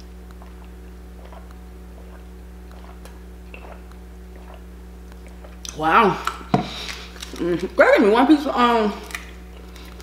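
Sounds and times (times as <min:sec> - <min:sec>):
low electrical hum: 0:00.0 - 0:10.0
person swallowing: 0:00.4 - 0:05.8.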